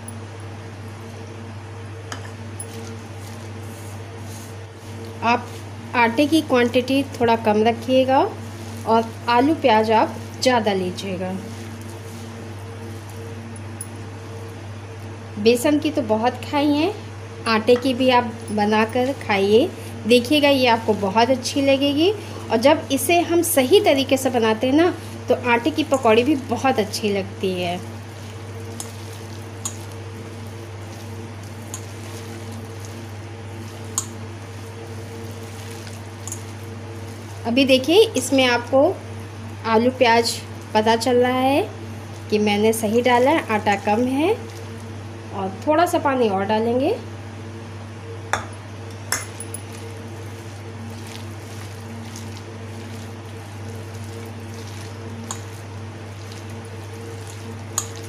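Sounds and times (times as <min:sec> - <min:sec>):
hand mixing batter in bowl: 0:00.0 - 0:16.8, 0:17.5 - 0:45.3, 0:49.0 - 0:58.0
steady low hum: 0:00.0 - 0:58.0
sharp clicks against bowl: 0:48.3 - 0:49.6.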